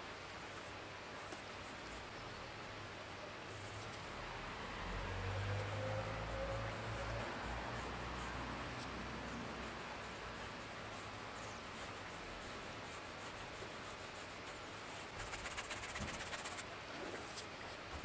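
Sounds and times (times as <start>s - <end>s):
steady background hiss: 0.0s - 18.0s
paintbrush scrubbing canvas: 0.4s - 2.1s, 5.5s - 18.0s.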